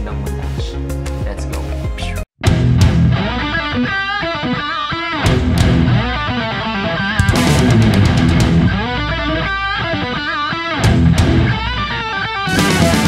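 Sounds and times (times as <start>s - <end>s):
drums: 0.0s - 3.7s, 5.2s - 6.3s, 7.2s - 9.8s, 10.4s - 13.0s
electric guitar lead line: 2.4s - 13.0s.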